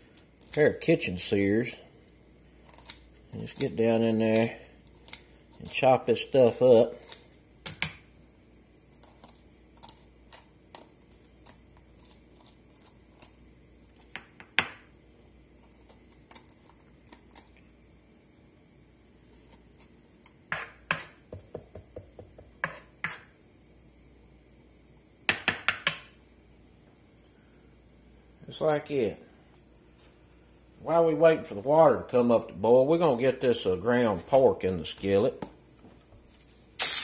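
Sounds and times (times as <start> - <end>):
spoon scraping inside pepper: 8.9 - 14.1, 15.5 - 17.6, 19.2 - 21.2, 22.6 - 23.4.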